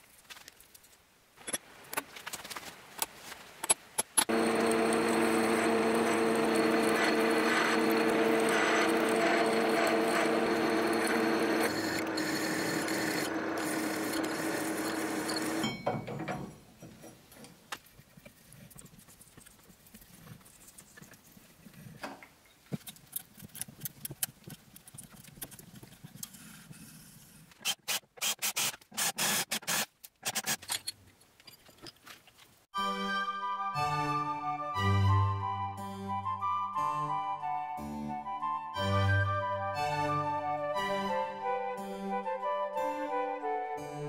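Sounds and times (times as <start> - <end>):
milling machine drilling metal: 4.3 - 15.7.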